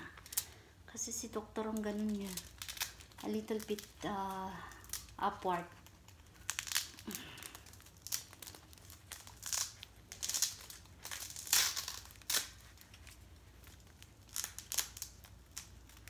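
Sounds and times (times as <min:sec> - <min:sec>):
paper and foil crinkling: 0:00.0 - 0:16.0.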